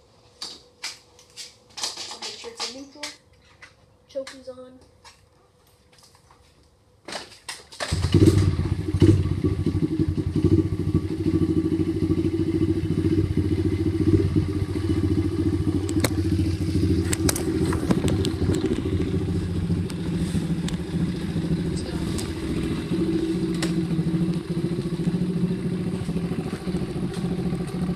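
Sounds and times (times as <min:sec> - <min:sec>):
dirt bike engine starting and running: 0:07.8 - 0:27.9.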